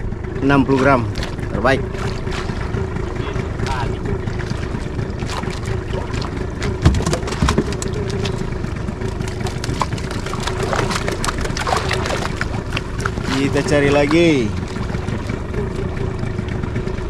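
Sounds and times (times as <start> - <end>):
boat engine idling: 0.0 - 17.0
knocks: 6.8 - 7.9.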